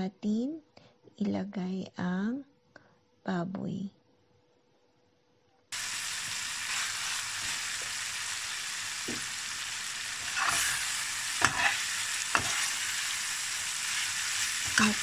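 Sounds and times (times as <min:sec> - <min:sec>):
meat sizzling in a frying pan: 0:05.7 - 0:15.0
metal spatula scraping pan: 0:10.2 - 0:12.8.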